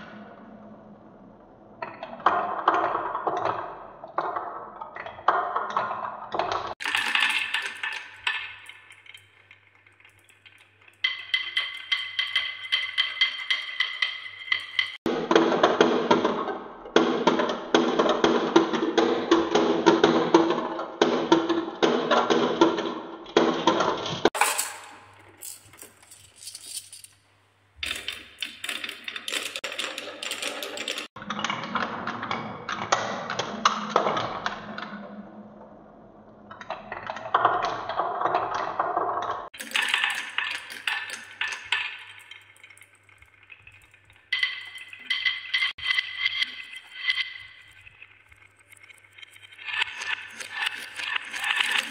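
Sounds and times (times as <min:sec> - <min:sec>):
marbles rattling down wooden tracks: 0:05.3 - 0:15.0, 0:24.3 - 0:31.2, 0:38.5 - 0:51.9.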